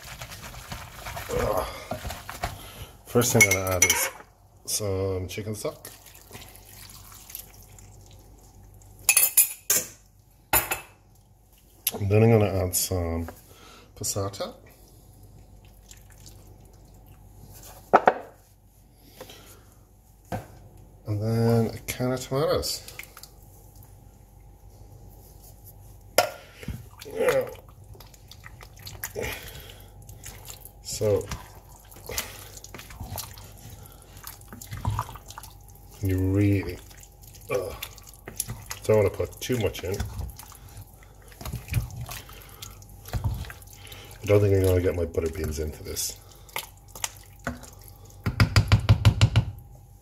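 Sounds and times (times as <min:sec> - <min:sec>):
tomatoes plopping and squelching: 0:00.0 - 0:09.1, 0:15.4 - 0:17.9, 0:21.6 - 0:24.0, 0:25.9 - 0:48.8
liquid pouring: 0:05.6 - 0:09.0, 0:26.5 - 0:48.2.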